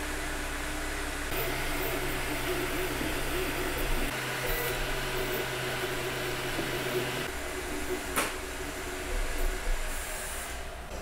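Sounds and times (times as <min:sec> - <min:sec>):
printer fans and motors whirring: 0:00.0 - 0:11.0.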